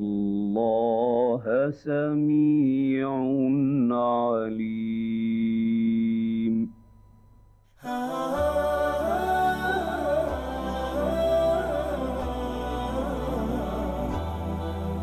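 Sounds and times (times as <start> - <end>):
wordless hummed vocal melody: 7.8 - 15.0
steady low drone: 8.1 - 15.0.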